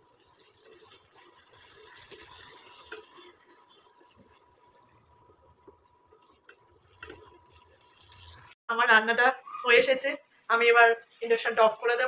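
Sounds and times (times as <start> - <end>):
food frying sizzle: 0.0 - 12.0
spatula knocking and scraping pan: 0.6 - 4.5, 5.6 - 7.6.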